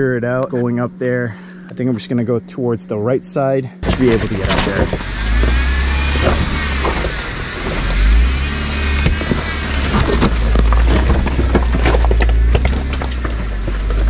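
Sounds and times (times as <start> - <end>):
engine rumbling low: 0.0 - 14.0
faint whine: 0.0 - 14.0
rocks crunching under tires: 3.8 - 14.0.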